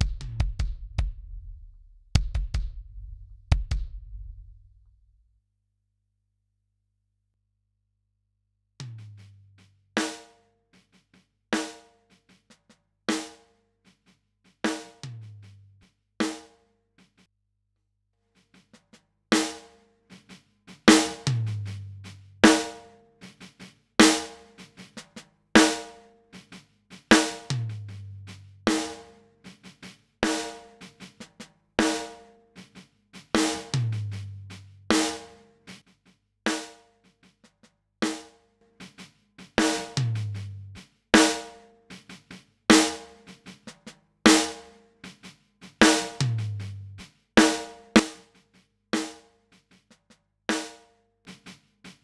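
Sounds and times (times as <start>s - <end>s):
deep kick drum boom: 0.0s - 4.8s
snare drum hits: 2.2s - 4.0s, 45.8s - 46.7s.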